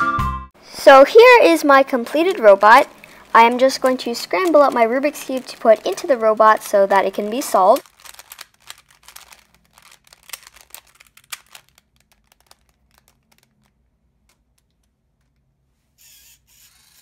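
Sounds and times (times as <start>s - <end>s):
puzzle cube plastic clicks: 2.2s - 15.5s.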